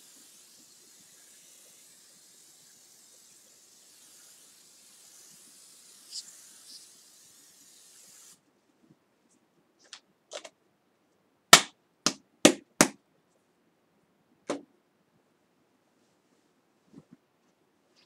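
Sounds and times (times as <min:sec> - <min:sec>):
aerosol spray hissing: 0:00.0 - 0:08.4.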